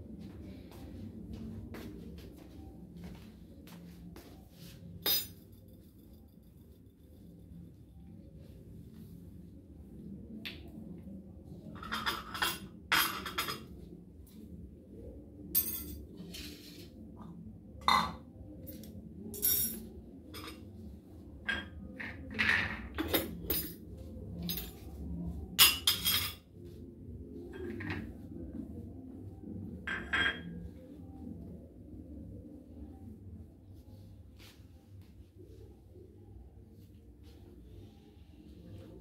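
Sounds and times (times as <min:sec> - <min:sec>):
crockery and cutlery clinking: 0:05.0 - 0:05.5, 0:11.8 - 0:13.7, 0:25.6 - 0:26.4, 0:29.9 - 0:30.6.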